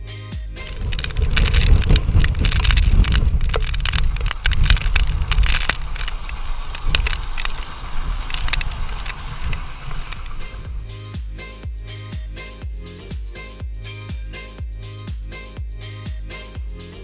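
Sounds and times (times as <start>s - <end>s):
crackling and sharp clicks: 0.6s - 10.9s
storm wind buffeting microphone: 0.6s - 11.0s.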